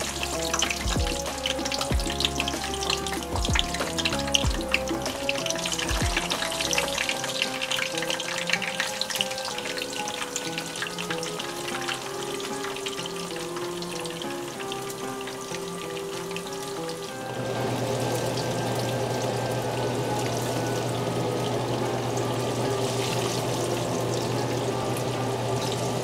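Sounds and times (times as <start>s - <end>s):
background music with bass beat: 0.0s - 7.1s
eggplant frying in hot oil: 0.0s - 26.0s.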